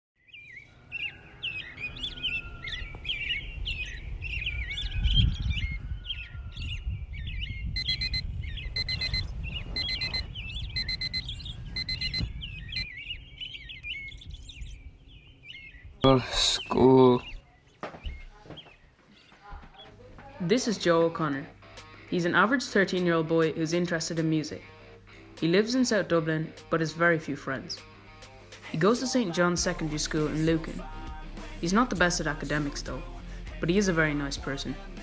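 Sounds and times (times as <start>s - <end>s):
birds chirping and singing: 0.2s - 35.0s
alarm clock beeping: 7.8s - 12.9s.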